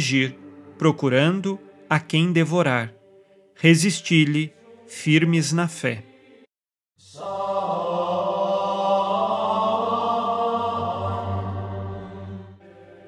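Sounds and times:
held choir-like chord: 0:00.0 - 0:13.0.

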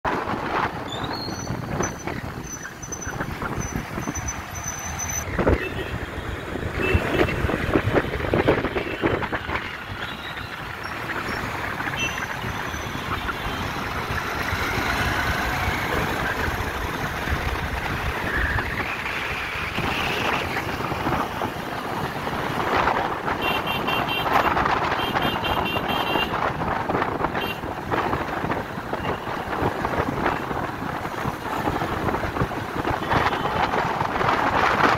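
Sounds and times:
motorbike engine and road noise: 0:00.0 - 0:34.9
vehicles passing: 0:00.0 - 0:34.9.

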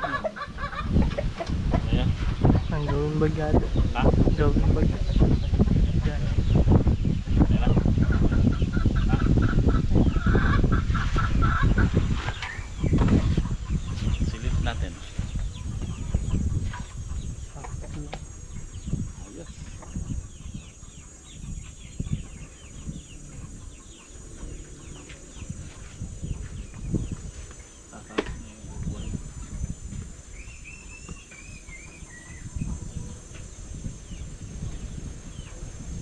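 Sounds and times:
chickens clucking and chirping: 0:00.0 - 0:36.0.

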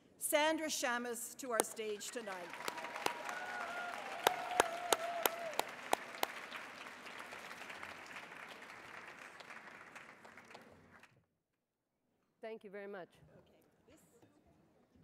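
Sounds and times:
audience applause: 0:01.6 - 0:11.2
loud claps near microphone: 0:01.6 - 0:11.2.

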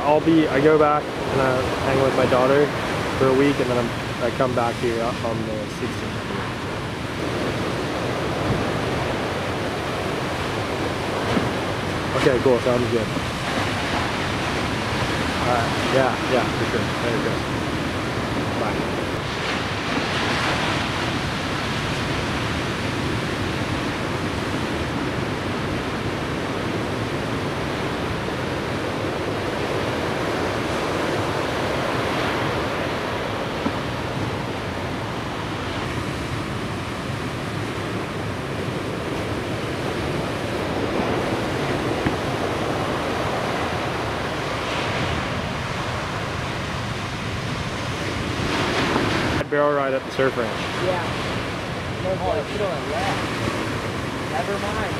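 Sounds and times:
ocean waves breaking in surf: 0:00.0 - 0:54.9.

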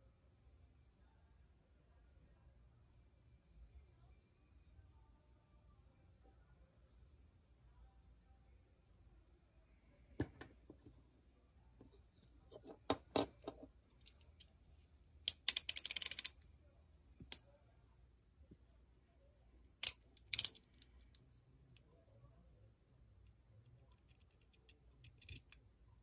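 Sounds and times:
utility knife blade ratcheting: 0:15.3 - 0:16.3, 0:19.8 - 0:20.8.

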